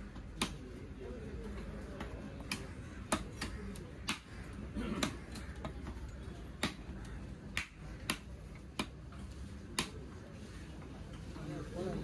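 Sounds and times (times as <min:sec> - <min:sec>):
knife chopping fish on wood: 0:02.0 - 0:09.0.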